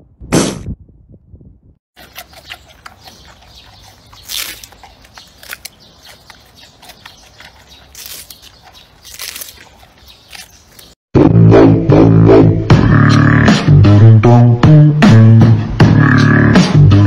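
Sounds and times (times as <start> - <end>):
panda chewing bamboo: 2.0 - 11.0.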